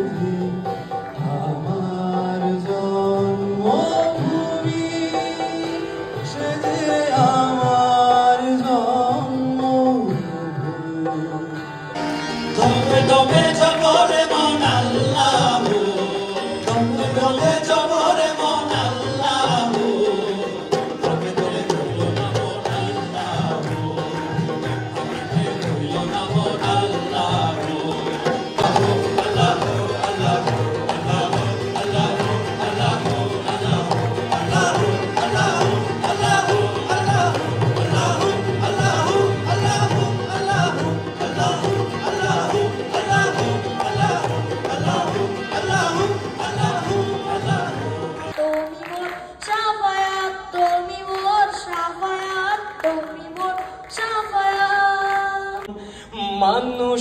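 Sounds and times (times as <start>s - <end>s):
harmoniums: 0.0s - 57.0s
group singing: 12.4s - 49.4s
hand drums beating: 12.5s - 48.4s.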